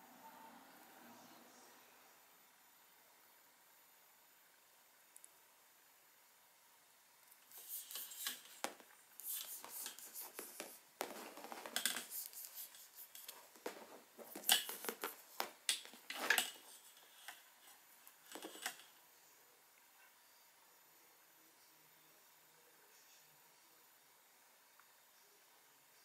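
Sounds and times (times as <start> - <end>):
plastic packaging crinkling: 7.6 - 16.7.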